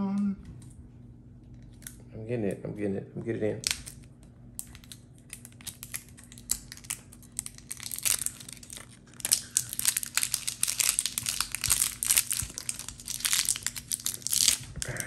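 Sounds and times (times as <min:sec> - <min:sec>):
plastic wrap crinkling: 0:03.6 - 0:15.0.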